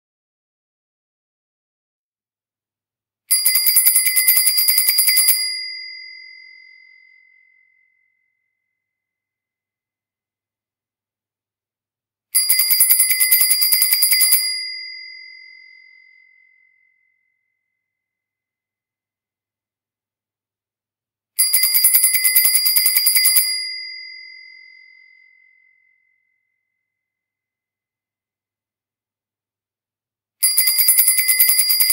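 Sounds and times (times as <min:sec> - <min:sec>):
bicycle bell trilling: 0:03.3 - 0:07.8, 0:12.4 - 0:16.8, 0:21.4 - 0:26.0, 0:30.4 - 0:31.9
bicycle bell ringing: 0:30.4 - 0:31.9.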